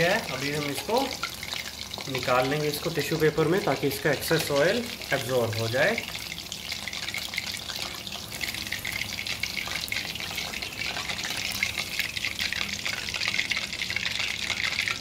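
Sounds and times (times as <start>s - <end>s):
oil sizzling and crackling: 0.0s - 15.0s.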